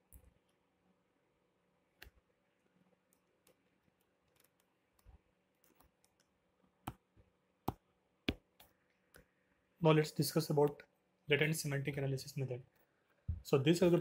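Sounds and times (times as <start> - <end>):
computer mouse clicks: 3.1 - 6.3.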